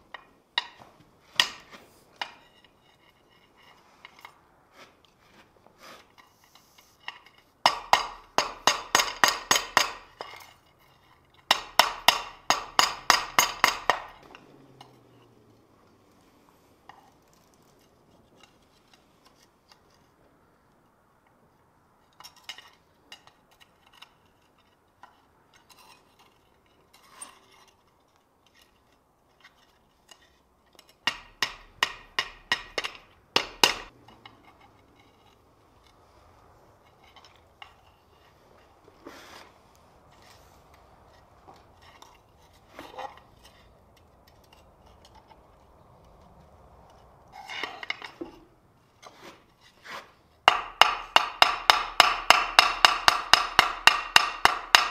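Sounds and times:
hammer striking hot steel: 7.6s - 10.2s, 11.5s - 14.2s, 31.1s - 33.9s, 50.5s - 54.9s.

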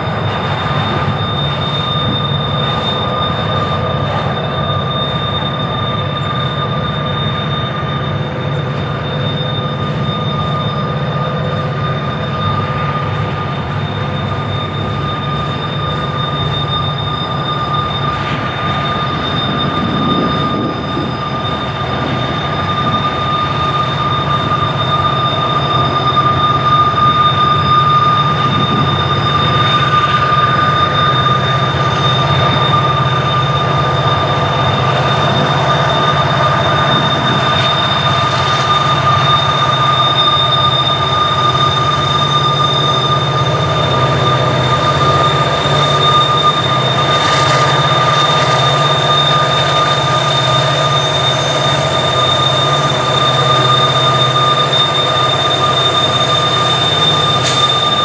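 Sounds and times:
train wheels rumbling on rail: 0.0s - 58.0s
wheel flanges squealing: 0.0s - 58.0s.

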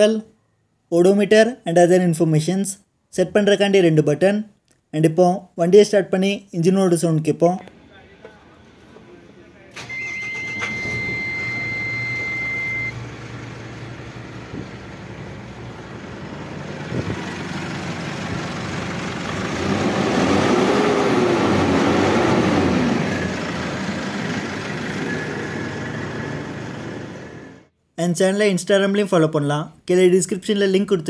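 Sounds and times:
diesel engine idling: 7.7s - 27.7s
high warning beep: 9.8s - 13.0s.

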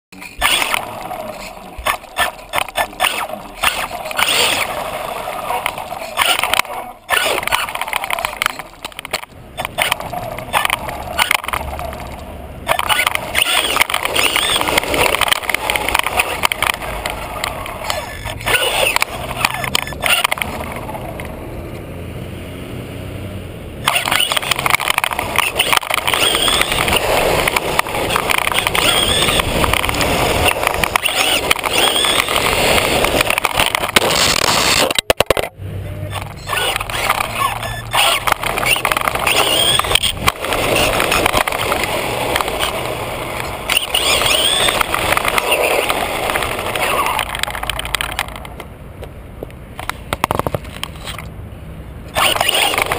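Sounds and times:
chassis rattling: 0.1s - 21.4s, 23.8s - 48.8s, 52.0s - 52.9s
tyres rushing on gritty ground: 0.1s - 21.8s, 23.8s - 52.9s
electric motor whining: 23.8s - 34.9s, 36.3s - 47.2s.

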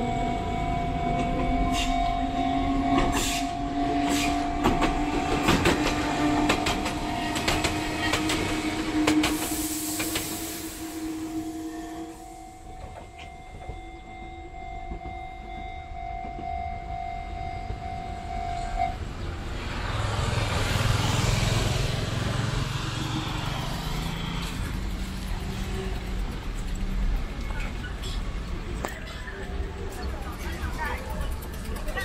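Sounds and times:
steady high tone: 0.0s - 19.0s
train motor whine: 0.0s - 19.0s
train wheels clacking over rail joints: 4.0s - 10.4s, 24.4s - 32.0s.

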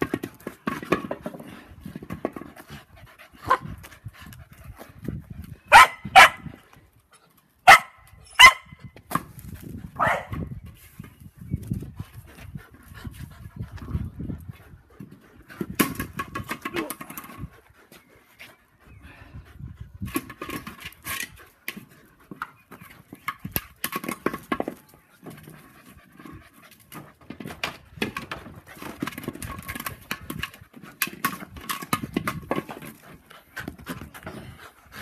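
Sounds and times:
dog panting hard: 1.4s - 5.7s, 11.7s - 23.2s, 25.0s - 35.0s.

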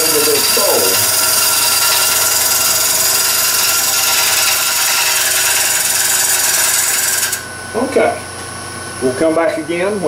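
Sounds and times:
turning tool cutting wood hiss: 0.0s - 7.4s
wood lathe humming: 0.0s - 8.1s.

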